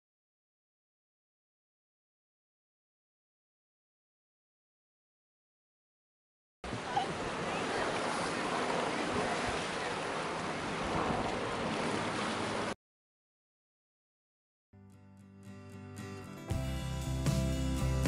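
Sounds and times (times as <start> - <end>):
sea surf washing over rocks: 6.6 - 12.8.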